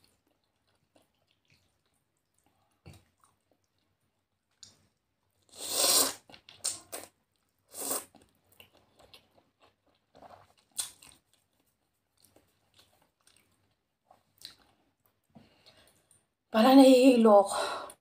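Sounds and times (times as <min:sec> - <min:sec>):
quiet chewing and mouth clicks: 0:00.0 - 0:16.4
person slurping noodles: 0:05.5 - 0:07.1, 0:07.7 - 0:08.2.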